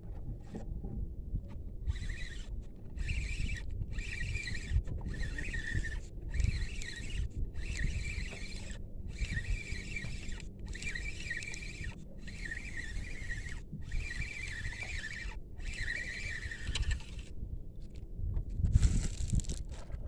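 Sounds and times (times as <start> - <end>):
fishing reel whine: 1.9 - 17.4
wind rumble: 16.4 - 20.0.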